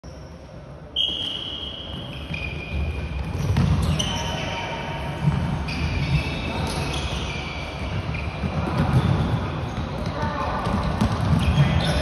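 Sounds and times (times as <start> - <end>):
high squeal-like tones: 1.0 - 9.2.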